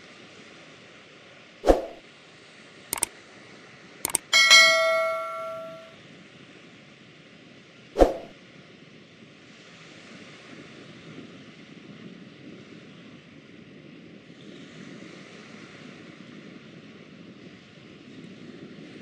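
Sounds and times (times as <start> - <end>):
bright bell chime: 4.1 - 5.9.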